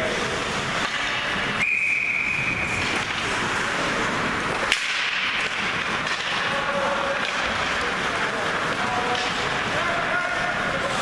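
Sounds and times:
referee's whistle: 1.6s - 2.7s
sharp crack: 4.6s - 9.6s.

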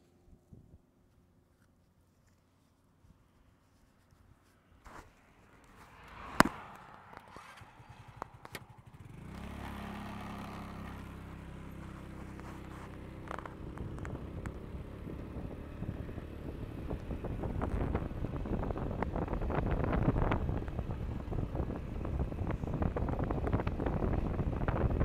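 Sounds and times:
vehicle engine running: 6.4s - 25.0s.

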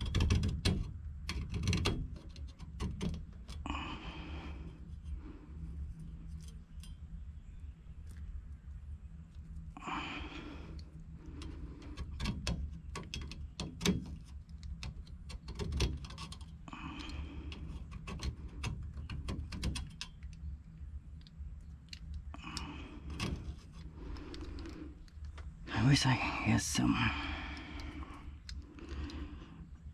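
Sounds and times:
handling clicks and knocks: 0.0s - 3.6s, 11.4s - 20.6s.

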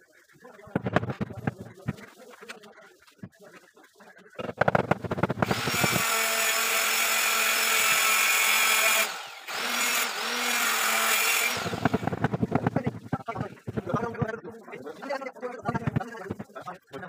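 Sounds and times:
power tool motor whine: 5.4s - 12.3s.

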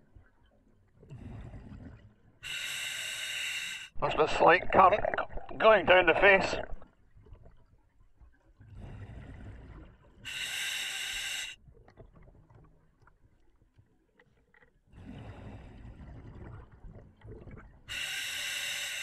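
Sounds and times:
hissing regulator inhale: 2.4s - 4.0s, 10.3s - 11.6s, 17.9s - 19.0s.

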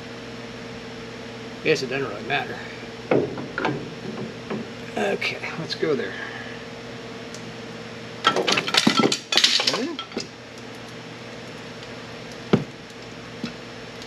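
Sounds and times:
steady hum: 0.0s - 14.0s
metal clinking and clattering: 8.3s - 10.3s.

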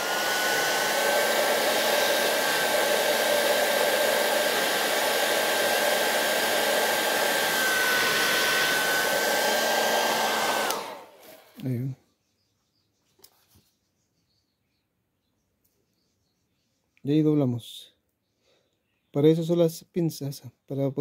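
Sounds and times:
hair dryer blowing air: 0.0s - 11.6s.

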